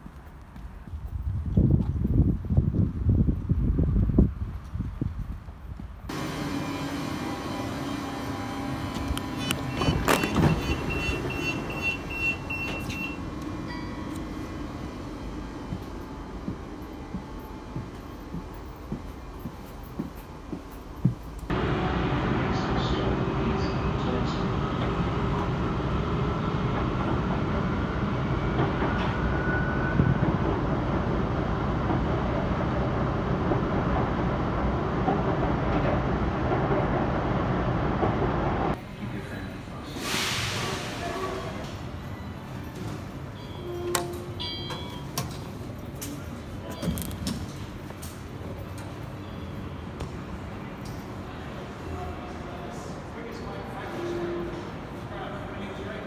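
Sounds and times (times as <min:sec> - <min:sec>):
train low hum: 0:00.0 - 0:56.0
train doors clunking: 0:07.1 - 0:21.5, 0:40.4 - 0:49.4
rapid high door beeps: 0:07.6 - 0:13.3
faint high squeal: 0:43.4 - 0:45.1.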